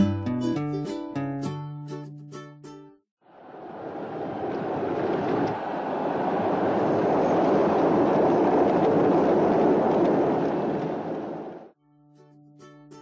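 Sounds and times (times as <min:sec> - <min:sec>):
galloping horses and chariot wheels: 0:03.7 - 0:11.7.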